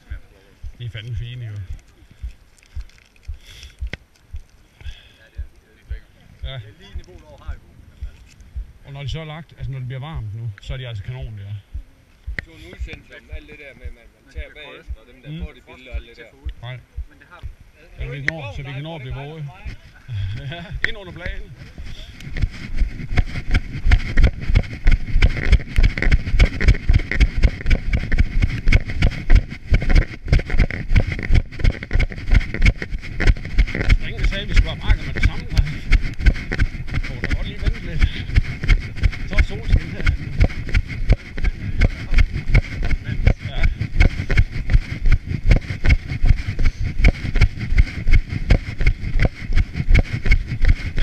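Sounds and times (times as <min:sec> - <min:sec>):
footsteps on dirt trail: 0:00.0 - 0:08.8, 0:10.7 - 0:51.0.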